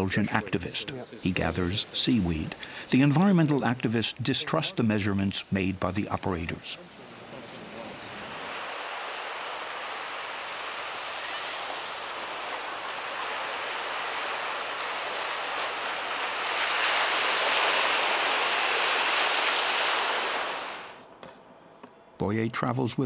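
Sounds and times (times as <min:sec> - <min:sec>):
sea surf washing ashore: 0:00.0 - 0:21.0.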